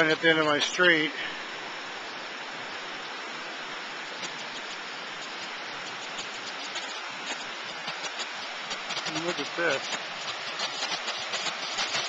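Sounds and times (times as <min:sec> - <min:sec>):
brook rushing: 0:04.0 - 0:12.0.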